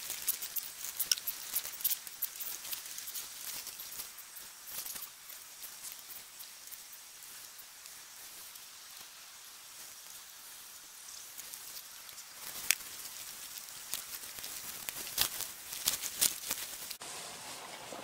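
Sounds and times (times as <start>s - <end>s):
irregular sharp crunches and clicks: 0.0s - 5.2s, 11.4s - 17.0s
faint steady hiss: 0.0s - 18.0s.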